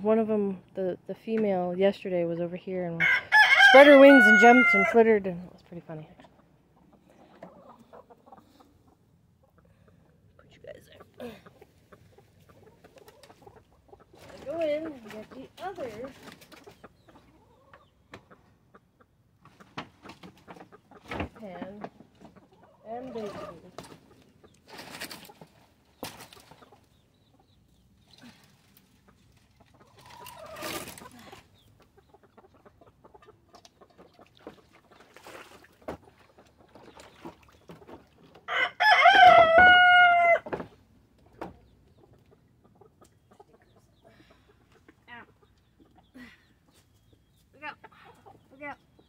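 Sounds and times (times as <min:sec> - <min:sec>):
rooster crowing: 0:03.0 - 0:05.0, 0:38.5 - 0:40.5
chicken clucking: 0:03.4 - 0:35.2, 0:41.2 - 0:49.0.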